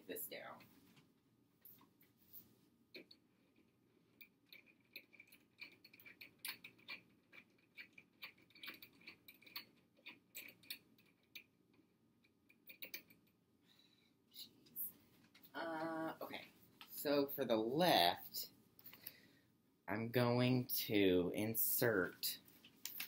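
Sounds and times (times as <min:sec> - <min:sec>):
small metallic clicks: 0:02.9 - 0:13.4.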